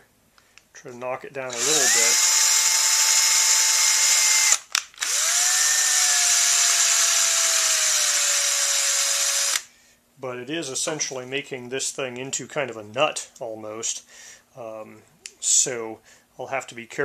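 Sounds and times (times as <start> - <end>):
cordless drill whine: 1.5 - 9.7
drill click: 1.5 - 9.7.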